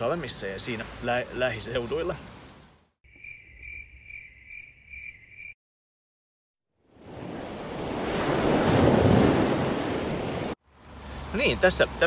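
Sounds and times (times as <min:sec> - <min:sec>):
insects trilling: 0:03.1 - 0:05.6
sea surf washing: 0:07.0 - 0:11.4.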